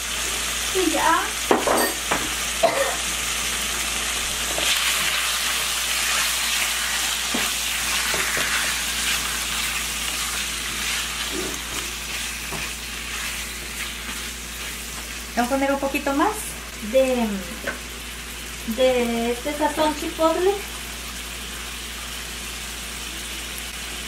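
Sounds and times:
chicken sizzling in oil: 0.0 - 24.0.

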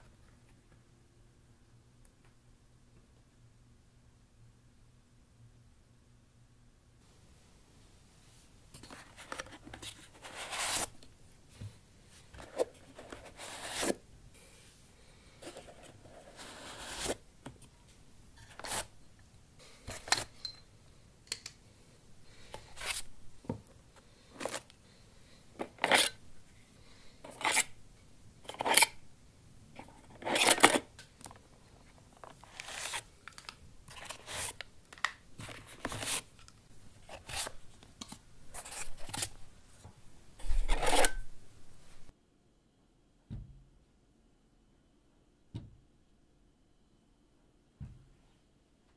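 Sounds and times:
hardware scraping against foam: 15.4 - 17.2.

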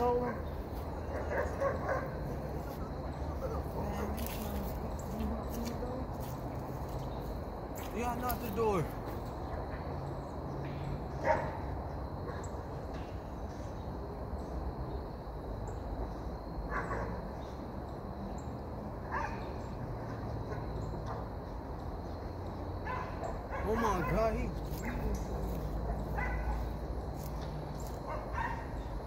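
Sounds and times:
dog barks: 1.1 - 2.2, 11.2 - 11.6, 16.7 - 17.2, 19.1 - 19.5, 22.8 - 24.4, 25.8 - 26.8, 28.0 - 28.8.

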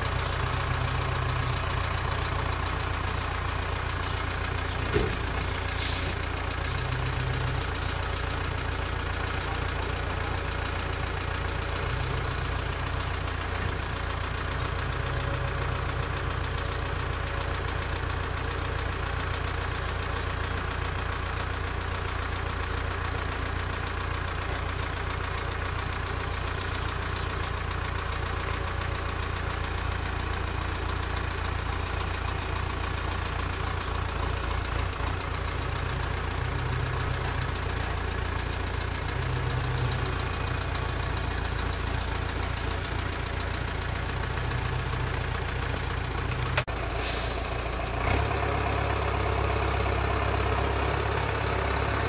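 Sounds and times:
tractor diesel engine idling: 0.0 - 52.0
short hiss: 5.5 - 6.2, 46.9 - 47.7.

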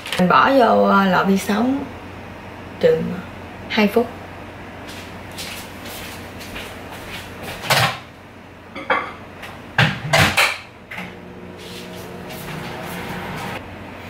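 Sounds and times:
microwave running hum: 0.0 - 14.0.

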